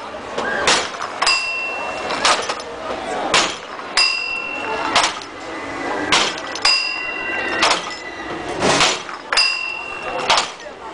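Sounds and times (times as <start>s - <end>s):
bell ringing: 1.3s - 2.1s, 4.0s - 4.9s, 6.5s - 8.3s, 9.3s - 10.2s.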